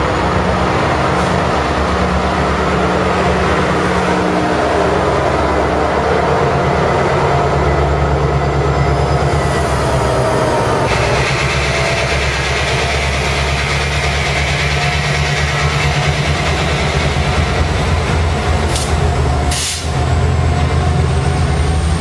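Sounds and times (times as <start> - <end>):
diesel locomotive engine drone: 0.0 - 22.0
loud hiss: 18.7 - 20.0.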